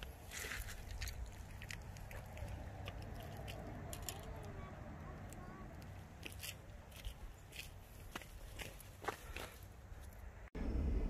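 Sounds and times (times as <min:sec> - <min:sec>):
distant voices: 0:00.0 - 0:10.2.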